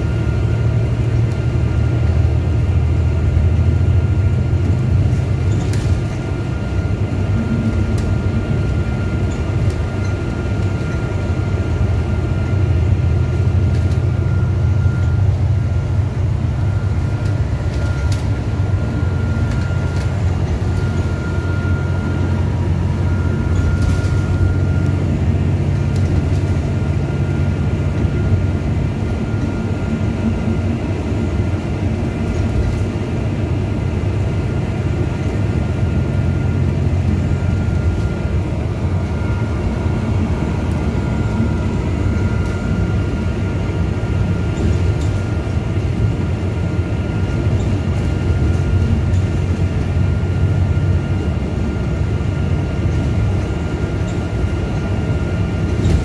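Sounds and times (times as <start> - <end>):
bus engine drone: 0.0 - 56.0
road and body noise: 4.2 - 50.0
faint high whine: 16.6 - 25.1, 36.9 - 45.2.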